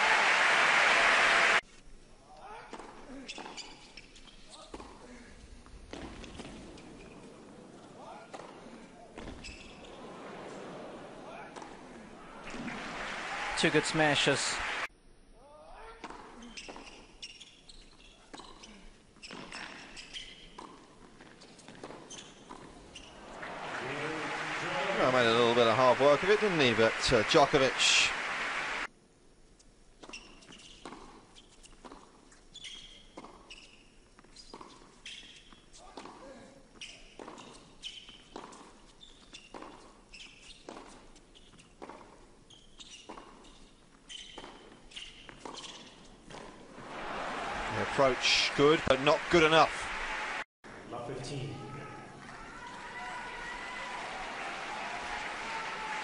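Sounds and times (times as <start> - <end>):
crowd noise: 0.0 - 1.6, 9.7 - 14.9, 22.8 - 28.9, 46.5 - 56.0
shoes squeaking on court: 2.7 - 5.0, 5.9 - 12.8, 16.0 - 26.9, 30.0 - 46.7
racquet strikes and ball bounces: 5.9 - 13.7, 18.1 - 28.8, 30.0 - 49.6.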